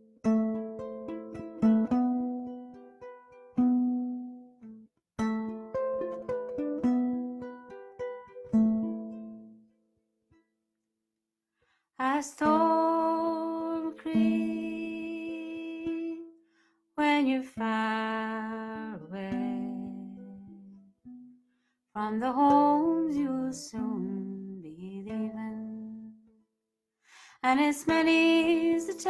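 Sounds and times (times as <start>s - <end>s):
strummed ukulele chords: 0.0s - 9.7s, 12.1s - 16.3s, 17.0s - 21.4s, 22.0s - 26.3s
woman singing a ballad: 12.0s - 16.3s, 17.0s - 20.5s, 22.0s - 26.2s, 27.4s - 29.0s.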